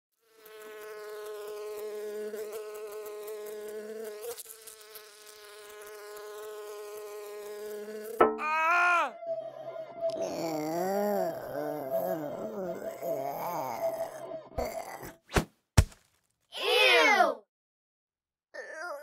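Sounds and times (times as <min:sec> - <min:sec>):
cartoon bee buzzing: 0:00.1 - 0:09.2, 0:10.1 - 0:15.2.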